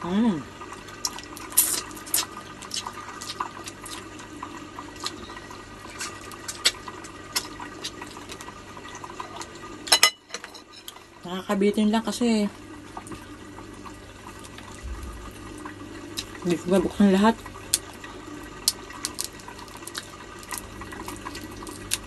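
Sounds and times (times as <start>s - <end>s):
wet sucking and chewing: 1.0s - 8.5s.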